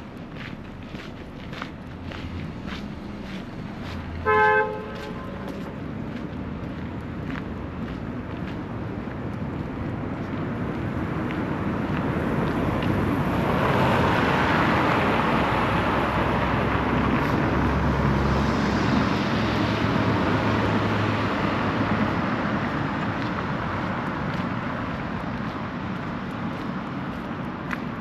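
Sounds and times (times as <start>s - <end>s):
vehicle driving past: 11.7s - 23.1s.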